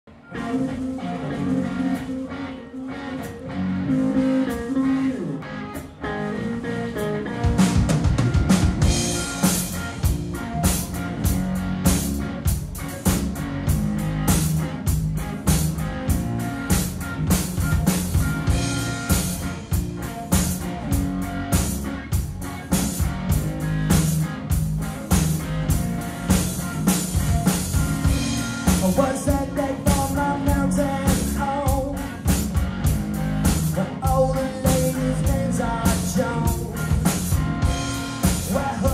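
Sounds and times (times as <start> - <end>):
bass guitar: 0.1 - 38.9
electric guitar: 0.1 - 38.9
drum kit beat: 7.4 - 38.9
man singing: 28.7 - 32.2, 33.7 - 37.2, 38.2 - 38.9.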